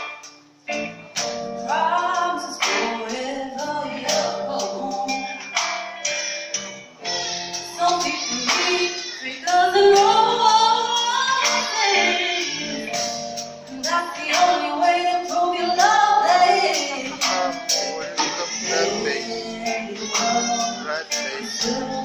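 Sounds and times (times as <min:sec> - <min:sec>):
live rock band playing: 0:00.0 - 0:22.0
woman singing: 0:01.7 - 0:05.3, 0:07.7 - 0:13.0, 0:13.7 - 0:22.0.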